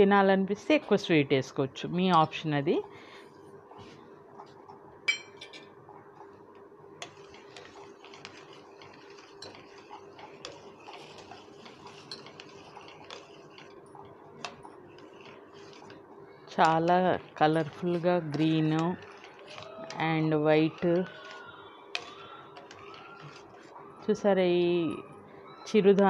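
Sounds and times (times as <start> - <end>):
spoon scraping metal pot: 7.0 - 24.0.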